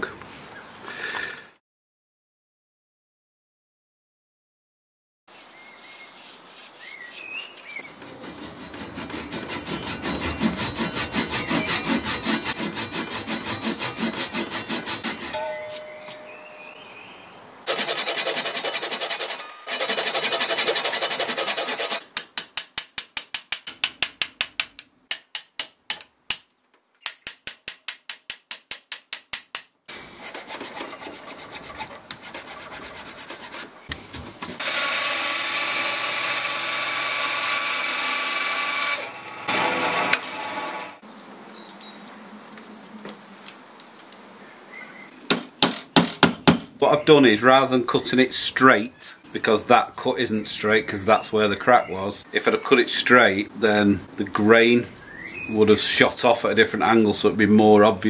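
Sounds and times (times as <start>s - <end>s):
hand saw rasping through wood: 5.3s - 15.4s, 17.7s - 22.0s, 30.2s - 33.7s, 34.6s - 41.0s
scraping and handling of wood: 5.8s - 16.3s, 17.7s - 22.0s, 30.0s - 34.8s.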